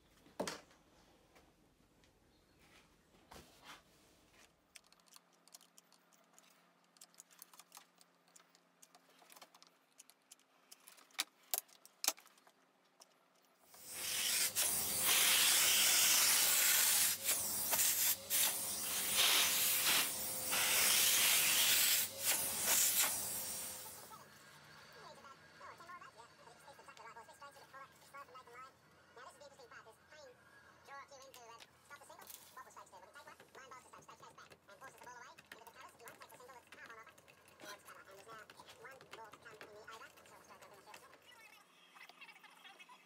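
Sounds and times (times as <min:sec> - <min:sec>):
workshop vacuum hissing: 0:13.7 - 0:25.0
faint clicks and knocks: 0:33.2 - 0:41.4.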